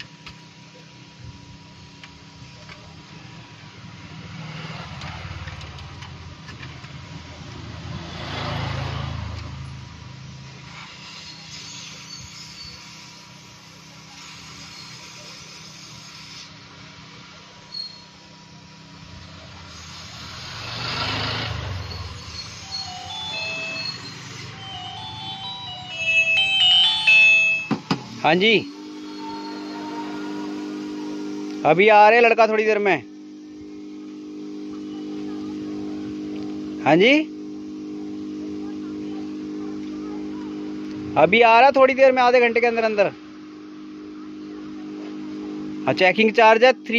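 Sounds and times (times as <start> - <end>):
hot air blower hissing: 0.0 - 46.9
vehicle engine passing by: 3.6 - 10.7, 19.2 - 25.6
steady low hum: 21.5 - 46.9
phone ringtone melody: 22.7 - 27.8.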